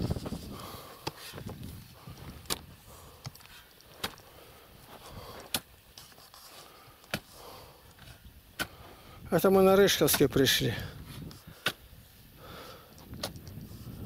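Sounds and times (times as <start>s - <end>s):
grass rustling underfoot: 0.0s - 12.4s.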